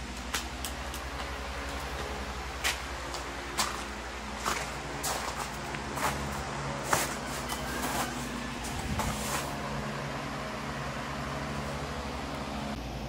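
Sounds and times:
low mechanical hum: 0:00.0 - 0:13.0
footsteps crunching in snow: 0:01.0 - 0:09.7.

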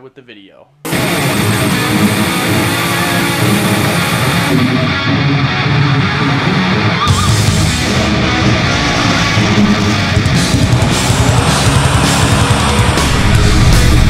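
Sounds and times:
loud rock music with electric guitar: 0:00.9 - 0:14.0.

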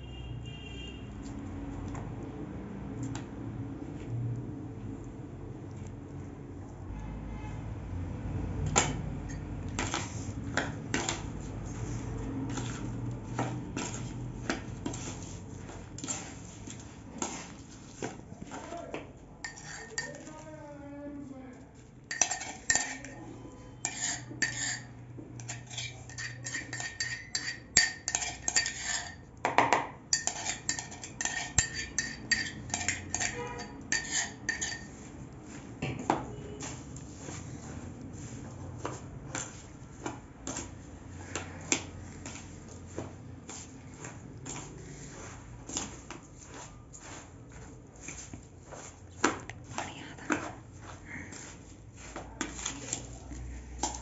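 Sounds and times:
metal spoon scraping and clinking: 0:08.7 - 0:18.6, 0:19.4 - 0:20.5, 0:22.0 - 0:29.3, 0:30.1 - 0:35.6, 0:52.1 - 0:54.0.

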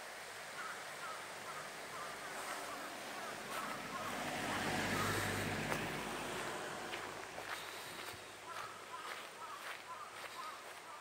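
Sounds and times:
stream rushing over rocks: 0:00.0 - 0:08.5.

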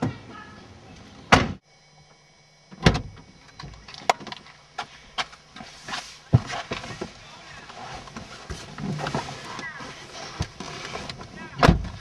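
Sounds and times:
car door thumping: 0:02.8 - 0:03.3, 0:11.6 - 0:12.0.

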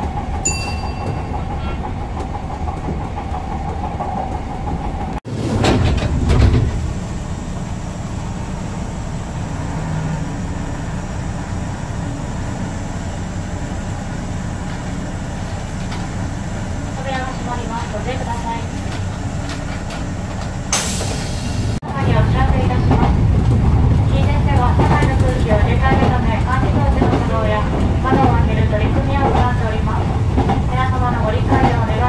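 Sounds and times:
electric train running rumble: 0:00.0 - 0:32.0.

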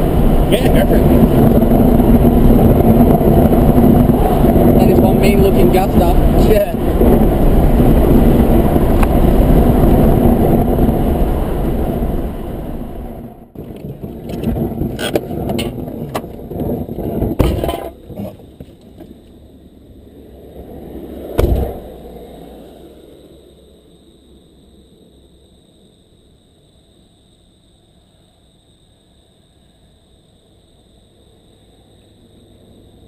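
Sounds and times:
car road and tyre noise: 0:00.0 - 0:33.0
loud thump: 0:17.2 - 0:18.0, 0:21.3 - 0:21.9.

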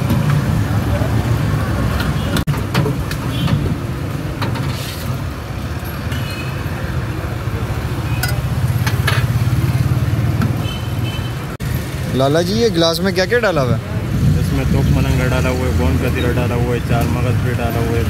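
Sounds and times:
street traffic rumble: 0:00.0 - 0:18.0.

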